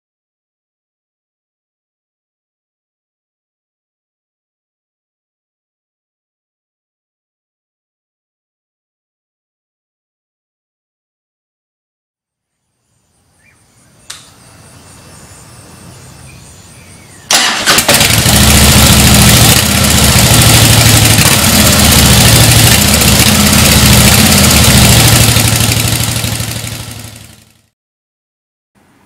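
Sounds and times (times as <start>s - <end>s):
motorcycle engine idling: 15.4s - 27.7s.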